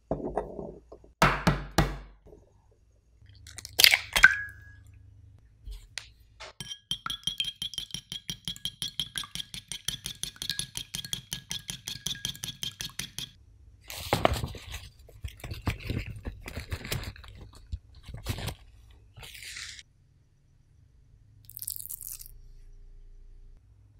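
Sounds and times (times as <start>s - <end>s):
whisk clinking in ceramic bowl: 6.6s - 13.4s.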